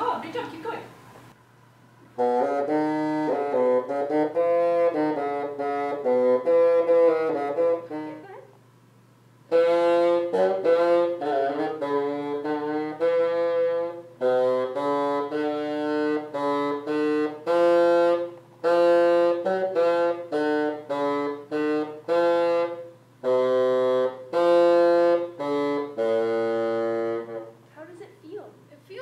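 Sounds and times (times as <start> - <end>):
bassoon playing slow notes: 2.2 - 8.4, 9.5 - 27.6.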